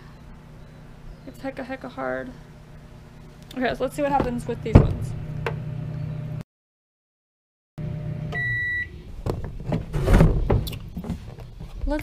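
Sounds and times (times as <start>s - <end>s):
microwave oven humming: 0.0s - 6.4s, 7.8s - 9.6s
microwave beep: 7.9s - 9.0s
knocks and handling noises: 9.2s - 12.0s.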